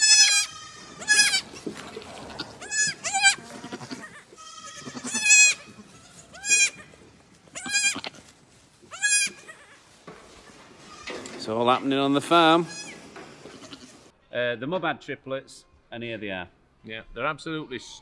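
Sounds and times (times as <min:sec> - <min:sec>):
goat kids bleating: 0:00.0 - 0:10.0, 0:10.7 - 0:11.3, 0:12.4 - 0:14.3.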